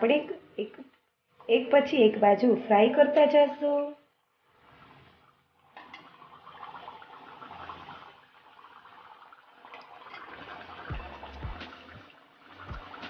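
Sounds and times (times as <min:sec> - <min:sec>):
hot oil sizzling and crackling: 0:05.7 - 0:09.0.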